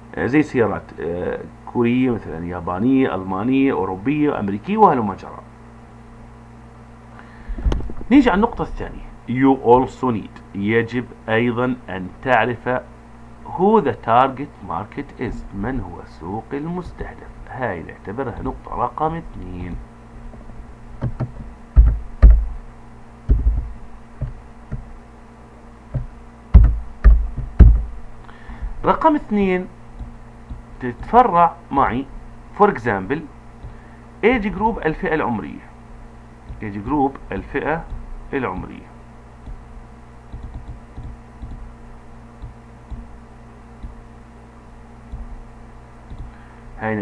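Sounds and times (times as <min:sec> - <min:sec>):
faint low hum: 0:00.0 - 0:47.0
keyboard keys thudding: 0:18.3 - 0:25.0, 0:25.9 - 0:29.0, 0:40.3 - 0:41.7
computer mouse clicking and moving: 0:40.3 - 0:41.6.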